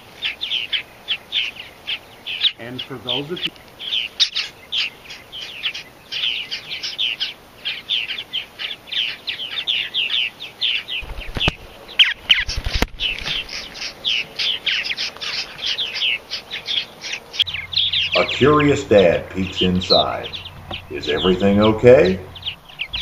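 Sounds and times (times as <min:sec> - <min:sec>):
birds chirping: 0:00.0 - 0:23.0
low thumps: 0:17.4 - 0:23.0.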